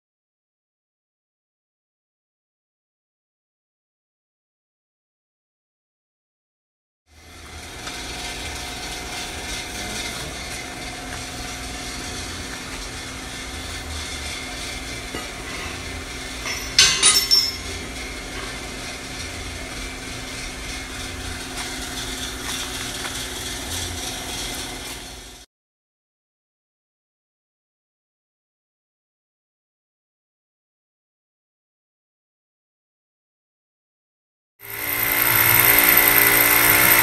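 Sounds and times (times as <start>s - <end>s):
mechanical hum: 7.1s - 25.4s, 34.6s - 37.0s
steel bar clanking: 15.1s - 17.8s.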